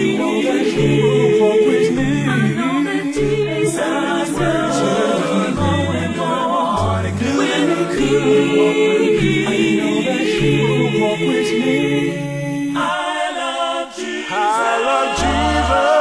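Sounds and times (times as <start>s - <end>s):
vocal group singing in harmony: 0.0s - 16.0s.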